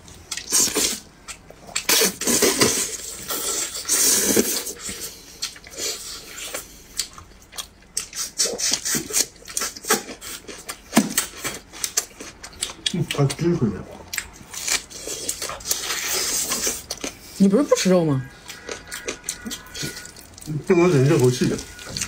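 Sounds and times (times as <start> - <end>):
person chewing meat: 0.0 - 17.4, 18.3 - 22.0
mouth smacking and clicking: 7.0 - 13.3.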